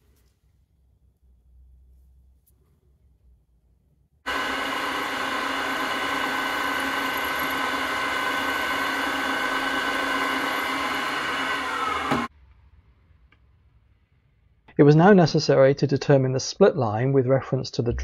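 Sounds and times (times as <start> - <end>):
drill press drilling cast iron: 4.3 - 12.3.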